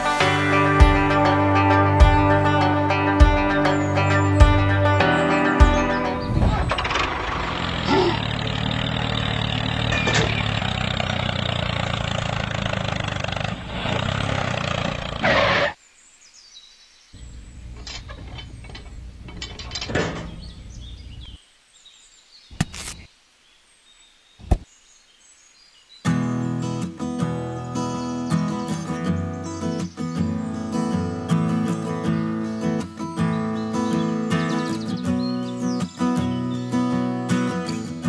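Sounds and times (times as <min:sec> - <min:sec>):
tines scraping through sand: 0:13.7 - 0:15.8, 0:22.6 - 0:23.1
short scuffs or clicks: 0:22.5 - 0:23.1, 0:24.4 - 0:24.7.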